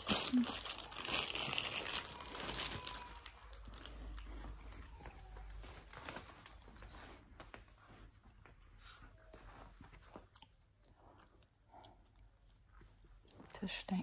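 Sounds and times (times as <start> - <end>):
plastic rustling and crinkling: 0.0 - 8.6.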